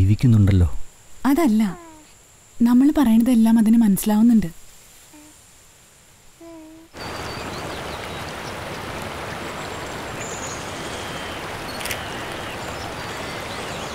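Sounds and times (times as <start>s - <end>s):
rushing stream water: 6.9s - 13.9s.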